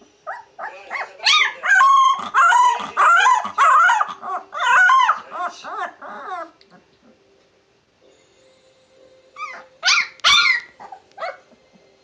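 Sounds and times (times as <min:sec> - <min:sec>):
puppy yipping: 0:00.3 - 0:06.5, 0:09.4 - 0:11.5.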